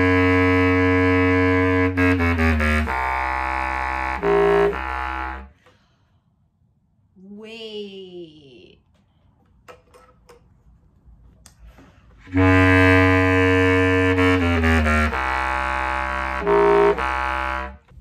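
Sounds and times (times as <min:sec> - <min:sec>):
bass clarinet low notes: 0:00.0 - 0:05.6, 0:12.2 - 0:18.0.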